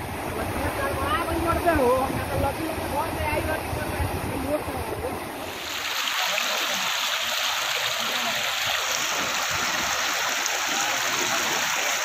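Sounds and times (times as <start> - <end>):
floodwater rushing: 0.0 - 12.0.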